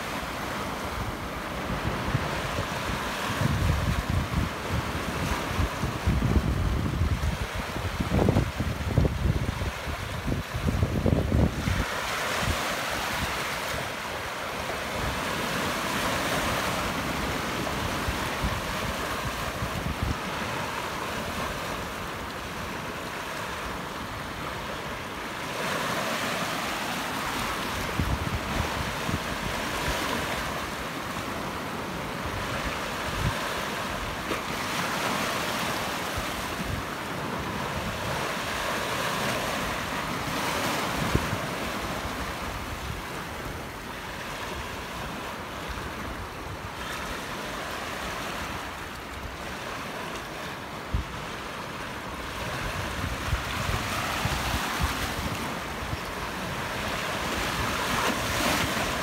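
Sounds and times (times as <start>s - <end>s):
waves washing over rock: 0.0s - 59.0s
wind rumble on microphone: 0.1s - 13.9s, 14.6s - 22.9s, 27.3s - 49.8s, 52.0s - 59.0s.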